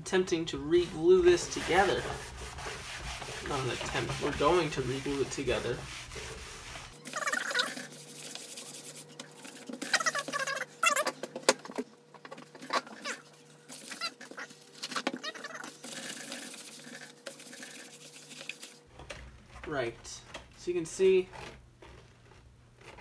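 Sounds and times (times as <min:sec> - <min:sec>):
rag rubbing on vinyl panel: 0:00.6 - 0:11.1, 0:12.5 - 0:18.9.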